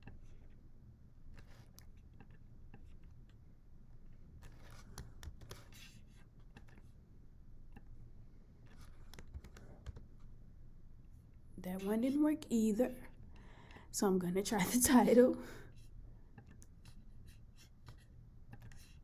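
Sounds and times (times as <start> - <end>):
keyboard and mouse clicks: 1.3 - 3.4, 4.4 - 5.8, 8.6 - 10.2, 17.9 - 19.0.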